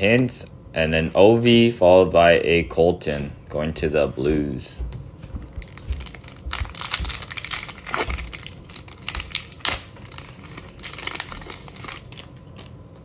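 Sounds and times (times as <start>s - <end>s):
foil wrapper crinkling and tearing: 5.6s - 12.8s.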